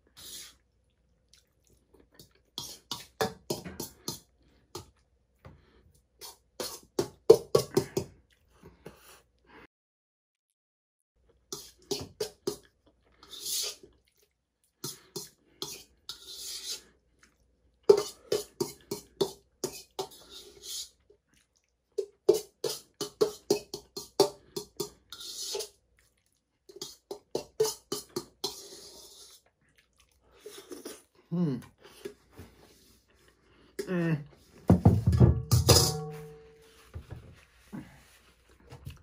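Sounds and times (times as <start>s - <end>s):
chewing and lip-smacking: 0.8s - 2.6s, 13.8s - 14.8s, 21.0s - 22.2s, 26.0s - 26.8s, 29.4s - 31.2s.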